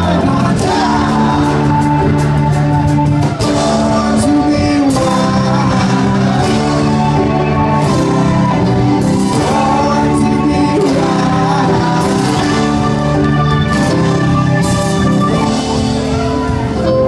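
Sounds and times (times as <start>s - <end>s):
voices singing: 0.0s - 13.1s
acoustic guitar: 0.0s - 17.0s.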